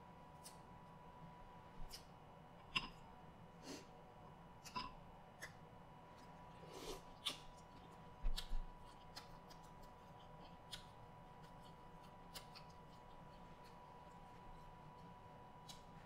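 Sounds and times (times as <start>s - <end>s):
faint high hum: 0.0s - 16.0s.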